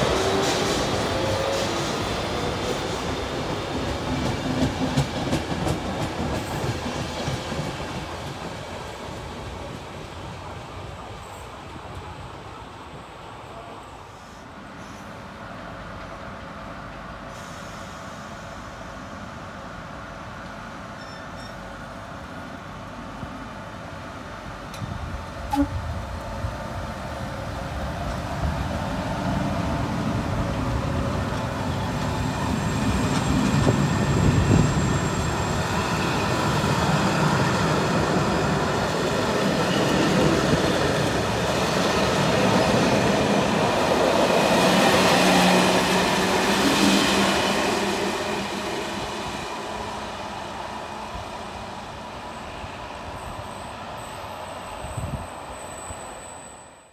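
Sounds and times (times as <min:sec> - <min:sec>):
rail and wheel noise: 0:00.0 - 0:56.9.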